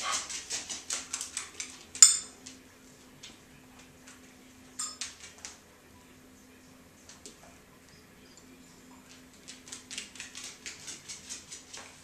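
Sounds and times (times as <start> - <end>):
dog claws on hardwood floor: 0.0 - 2.6, 9.1 - 12.0
metal dumbbells clinking: 2.0 - 2.3, 4.8 - 5.0.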